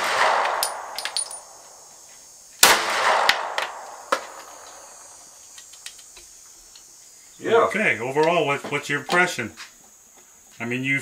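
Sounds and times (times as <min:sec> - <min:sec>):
handgun shot: 0:00.0 - 0:01.3, 0:02.6 - 0:04.4.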